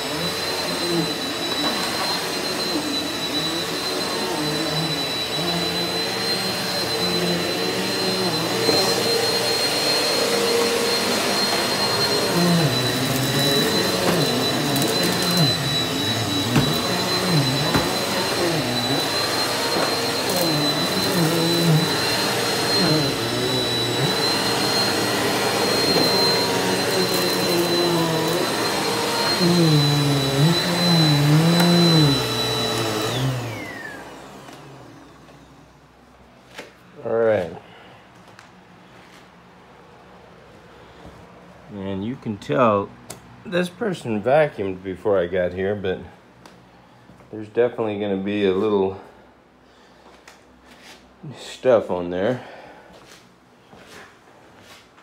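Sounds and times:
vacuum cleaner running: 0.0s - 37.8s.

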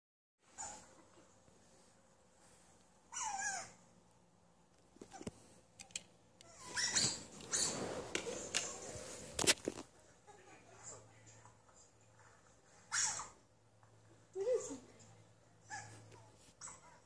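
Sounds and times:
otter squeaks and chirps: 6.5s - 7.8s.

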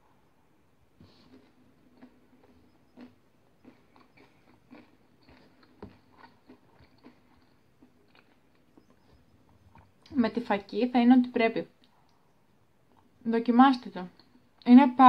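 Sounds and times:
faint low hum: 0.0s - 15.0s
chewing bread: 1.0s - 10.1s.

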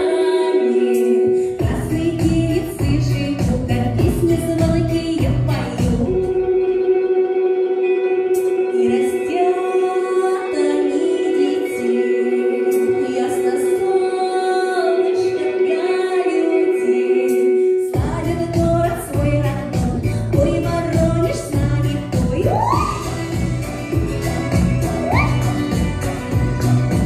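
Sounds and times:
woman singing: 0.0s - 7.1s, 8.6s - 27.0s
drums and bass backing track: 1.6s - 6.3s, 18.0s - 27.0s.

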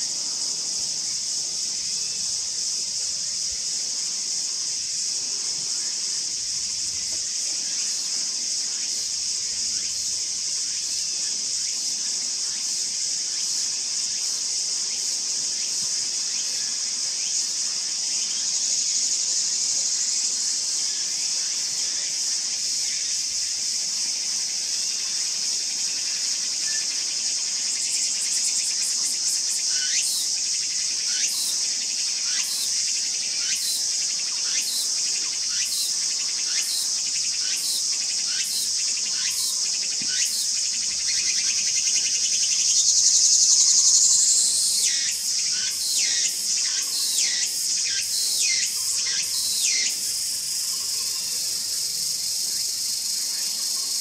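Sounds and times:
insects singing drone: 0.0s - 54.0s.

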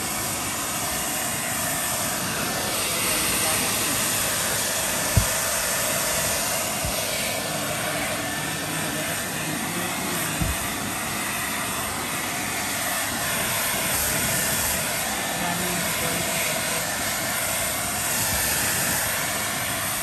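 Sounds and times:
hair dryer blowing: 0.0s - 20.0s
soft thump: 5.2s - 5.4s.

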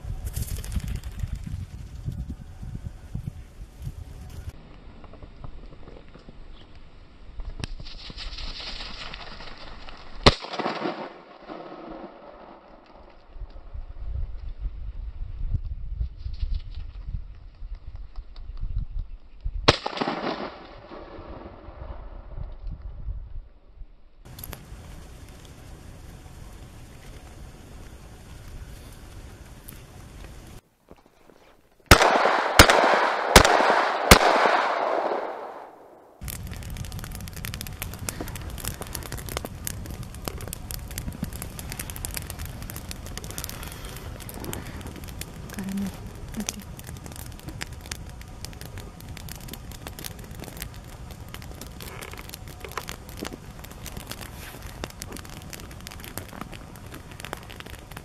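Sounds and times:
wind rumble on microphone: 0.0s - 10.2s, 13.0s - 19.7s, 20.4s - 30.6s, 36.2s - 58.0s
gunshot echo: 10.2s - 12.6s, 19.7s - 21.8s, 31.9s - 36.1s
small crackling clicks: 24.3s - 25.8s, 26.4s - 30.5s, 36.2s - 58.0s
shotgun shots: 31.9s - 35.9s.

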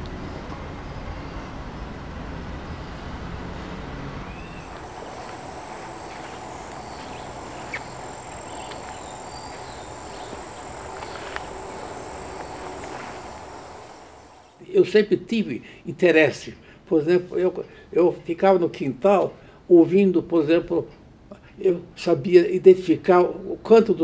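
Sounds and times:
high insect buzz: 4.2s - 14.6s
bird chirps: 4.3s - 14.6s
low rumble: 4.3s - 14.6s.

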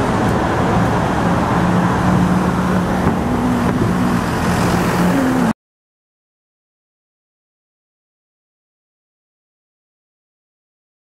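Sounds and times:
low engine hum: 0.0s - 5.6s
road traffic passing: 0.0s - 5.6s.

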